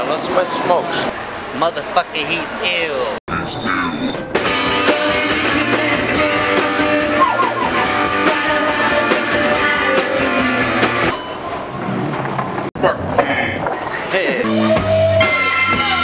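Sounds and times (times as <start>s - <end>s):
live rock band playing: 4.4s - 11.1s, 14.5s - 16.0s.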